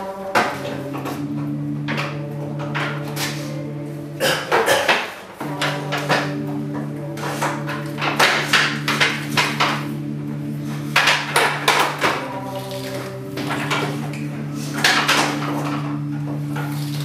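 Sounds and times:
steady low humming tone: 0.0s - 17.0s
sharp knocks on wooden boards: 11.0s - 12.3s.

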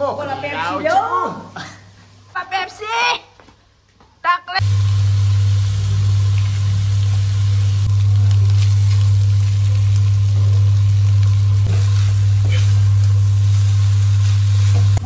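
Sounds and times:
food sizzling in a wok: 4.6s - 15.0s
loud low hum: 4.6s - 15.0s.

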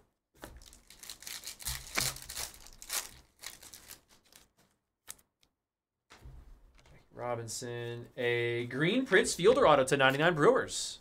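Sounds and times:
card packaging crinkling and tearing: 0.4s - 5.2s.

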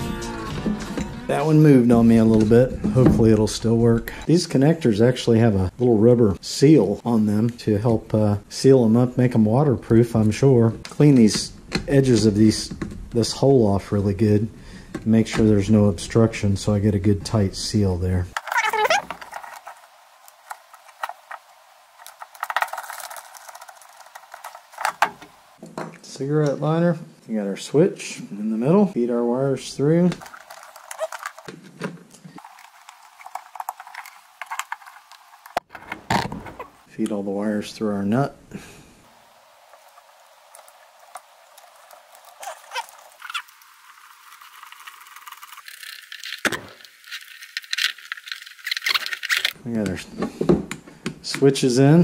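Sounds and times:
rustling and clicks of wires: 18.3s - 26.6s, 30.0s - 36.8s, 39.7s - 51.5s.

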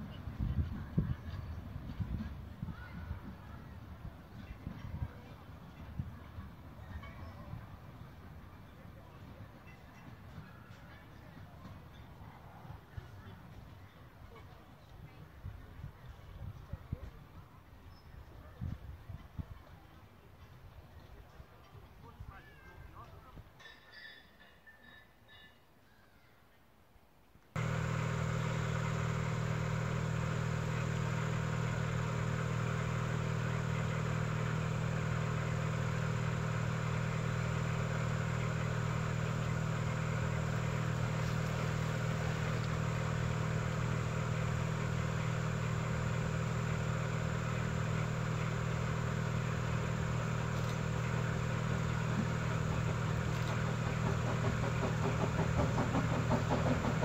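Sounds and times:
engine humming: 27.6s - 57.0s.

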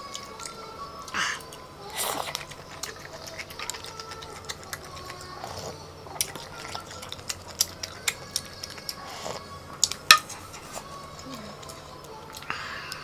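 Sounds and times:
wet chewing with mouth clicks: 0.0s - 13.0s
noodles slurped: 1.1s - 9.5s.

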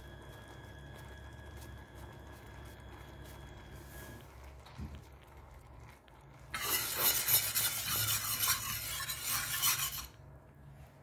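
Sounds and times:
whisk scraping metal pan: 6.5s - 10.2s.

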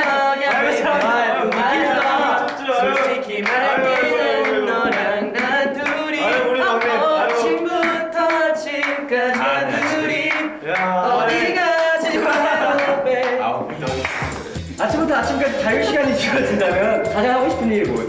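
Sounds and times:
male group singing pop song: 0.0s - 18.0s
steady dance beat: 12.2s - 18.0s.

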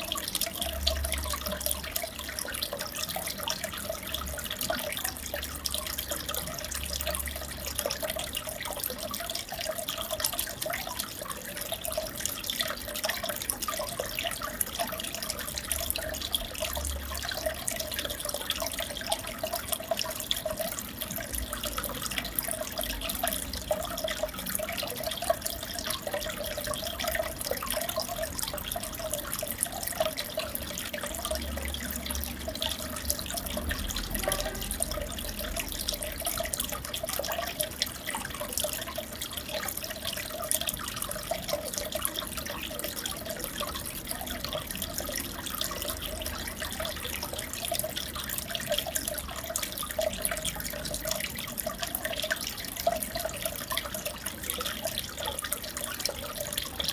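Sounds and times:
aquarium water trickling and bubbling: 0.0s - 56.9s
water drips and splashes: 0.0s - 56.9s.

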